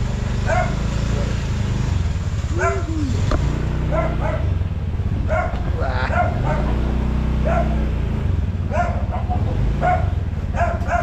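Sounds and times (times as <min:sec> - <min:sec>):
vehicle engine humming: 0:00.0 - 0:11.0
dog barking: 0:00.4 - 0:00.9, 0:02.5 - 0:02.9, 0:03.8 - 0:04.6, 0:05.2 - 0:07.9, 0:08.6 - 0:11.0.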